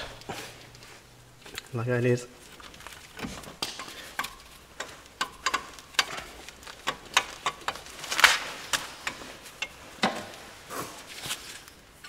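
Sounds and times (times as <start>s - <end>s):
metallic clicks and taps: 3.6s - 7.9s.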